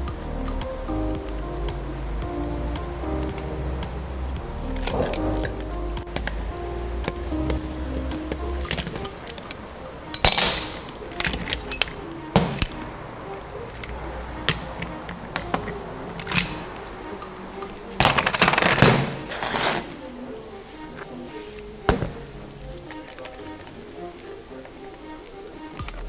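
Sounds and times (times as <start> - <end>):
soft background music: 0.0 - 26.0
metal parts clinking on workbench: 10.2 - 12.8, 15.4 - 16.8, 18.0 - 20.0, 22.5 - 23.8.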